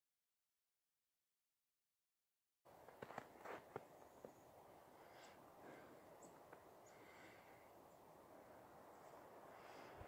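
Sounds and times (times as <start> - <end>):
faint outdoor background hiss: 2.7 - 10.0
boots crunching on snow: 2.8 - 3.9.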